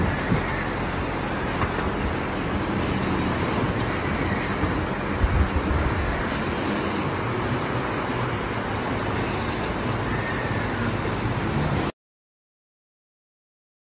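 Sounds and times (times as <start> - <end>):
wind rumbling on microphone: 0.0 - 8.9.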